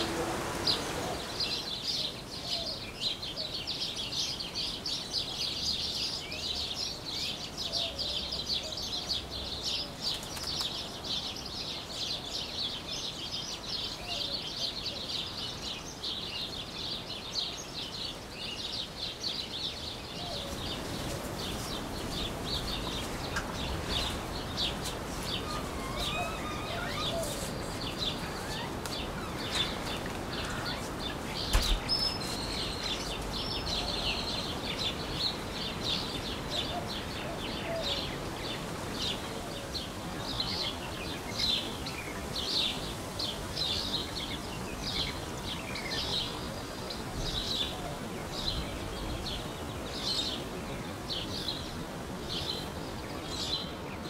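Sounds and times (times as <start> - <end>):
small birds chirping: 0.0 - 54.0
lower sliding bird calls: 21.3 - 33.2.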